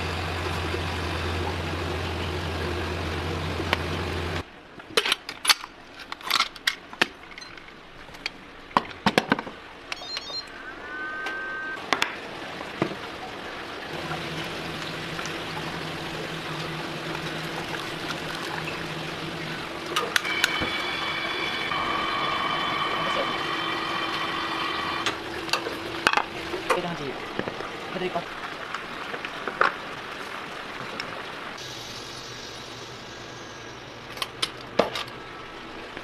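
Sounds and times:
kitchen hum: 13.9s - 27.5s
low steady tone: 18.6s - 25.9s.

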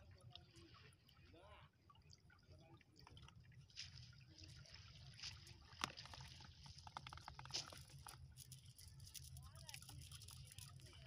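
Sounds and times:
fishing net clicks and rustles: 5.8s - 11.0s.

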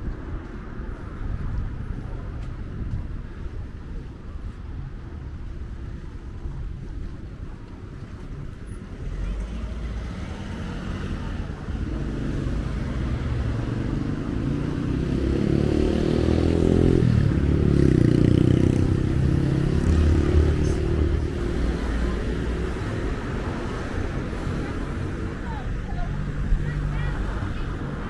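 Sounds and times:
cars driving past: 8.4s - 28.0s.

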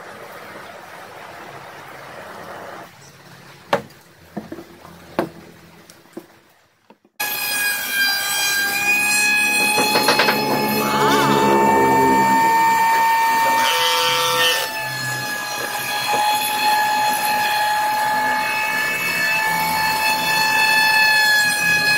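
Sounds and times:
loud steady multi-tone whine: 7.3s - 21.9s
knocks of wooden board: 9.5s - 10.7s.

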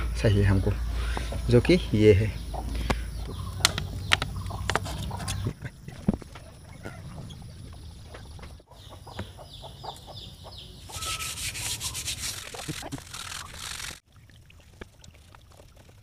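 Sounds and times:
cloth scrubbing metal parts: 10.8s - 14.0s.

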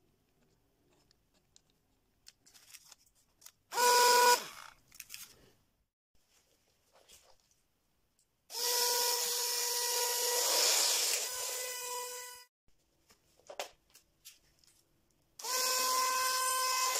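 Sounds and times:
small electric motor humming: 8.5s - 12.5s, 15.4s - 16.9s.

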